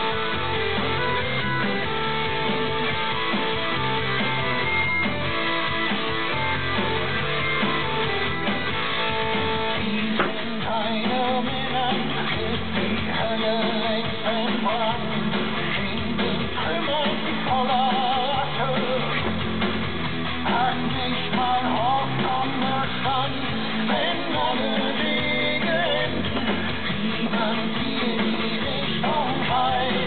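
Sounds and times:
rock music with guitar: 0:00.0 - 0:30.0
person singing: 0:09.7 - 0:19.4, 0:20.4 - 0:30.0.

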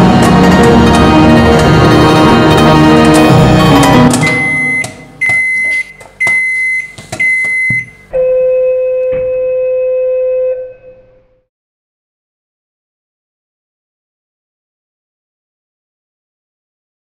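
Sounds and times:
soundtrack music: 0:00.0 - 0:05.2
short high-pitched beeps: 0:04.2 - 0:09.5
long low beep tone: 0:04.2 - 0:11.3.

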